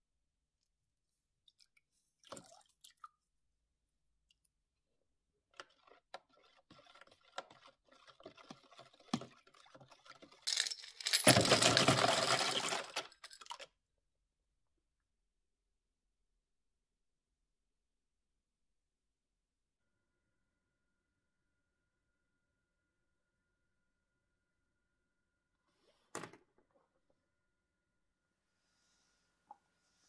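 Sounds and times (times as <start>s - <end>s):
water swishing in plastic tub: 1.5s - 3.2s.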